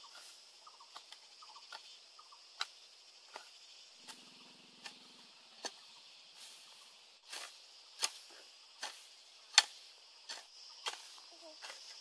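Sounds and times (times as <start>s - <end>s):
hoe chopping into soil: 7.2s - 12.0s.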